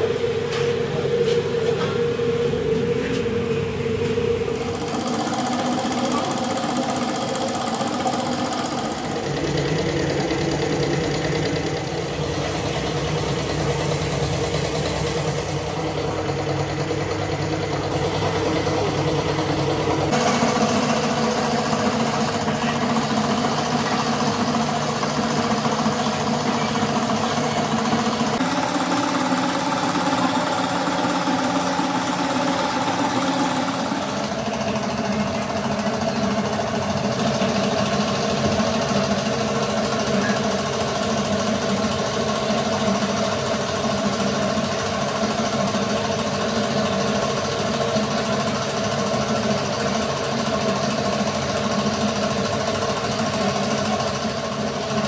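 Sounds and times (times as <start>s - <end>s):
machinery motor humming: 0.0s - 55.0s.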